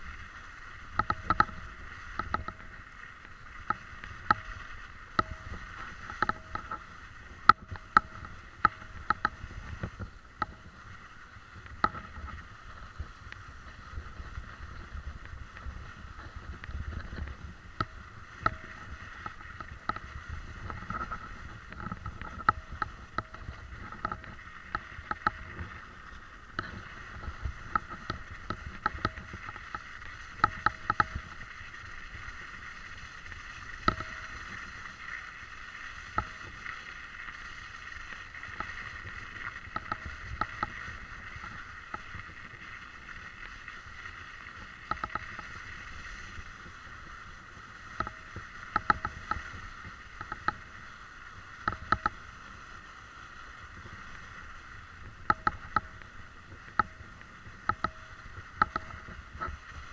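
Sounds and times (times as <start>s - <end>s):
camera hiss moving over snow: 0.0s - 59.9s
sharp clicks and knocks: 0.8s - 10.8s, 11.6s - 13.5s, 14.2s - 31.7s, 33.6s - 35.3s, 38.1s - 42.6s, 44.7s - 45.6s, 47.9s - 50.7s, 51.6s - 52.2s, 55.2s - 59.9s.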